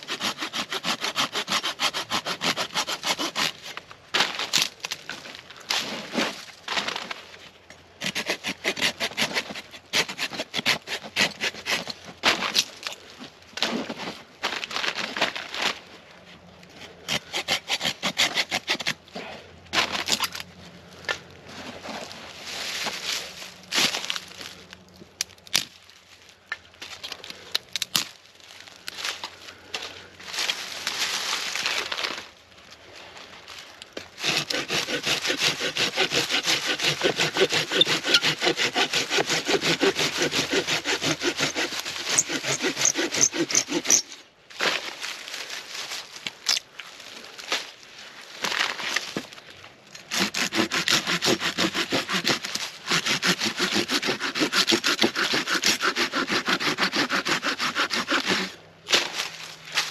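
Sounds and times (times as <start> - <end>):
hand saw cutting wood: 0.0 - 3.8, 8.0 - 13.0, 17.0 - 20.4, 34.2 - 44.2, 50.0 - 59.2.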